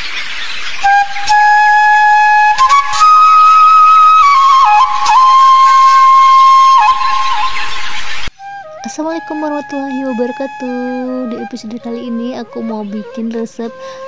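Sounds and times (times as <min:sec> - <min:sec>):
flute-like melody: 0:00.8 - 0:14.0.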